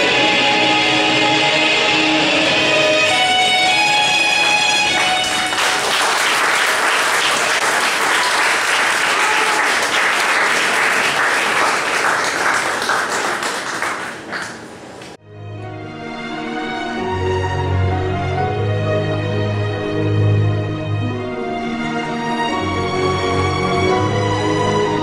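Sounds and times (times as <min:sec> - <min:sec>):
dance music: 0:01.1 - 0:05.9
audience applauding: 0:03.2 - 0:15.2.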